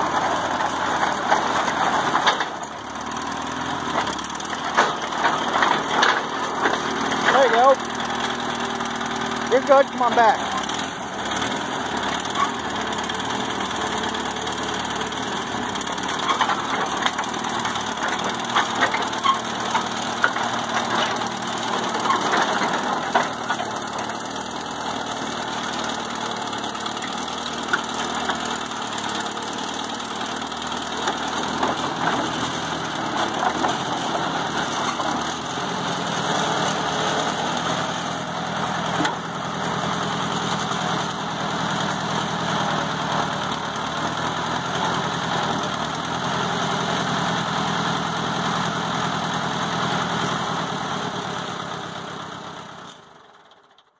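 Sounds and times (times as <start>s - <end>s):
vehicle engine idling: 0.0s - 53.8s
knocks and clatters: 0.1s - 7.7s, 15.9s - 24.6s, 25.5s - 35.5s.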